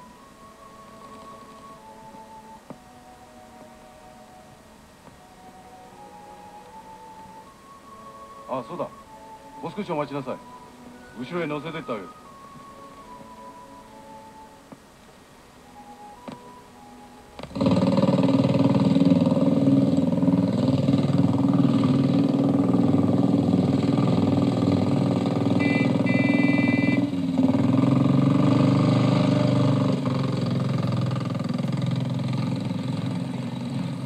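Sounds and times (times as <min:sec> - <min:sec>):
motorcycle engine running: 0:17.4 - 0:34.0
brief high tone: 0:25.6 - 0:27.2.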